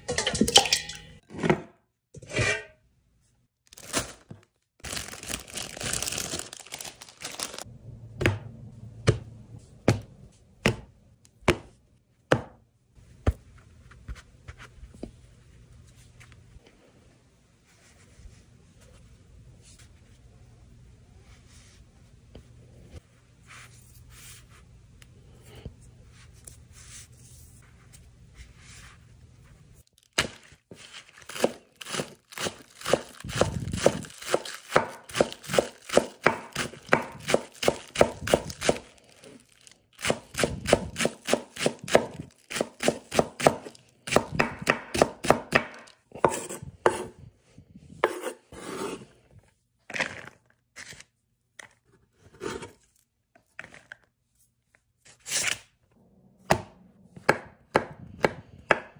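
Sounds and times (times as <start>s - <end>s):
knife chopping on cutting board: 31.3s - 38.8s, 40.0s - 47.1s, 48.0s - 49.0s.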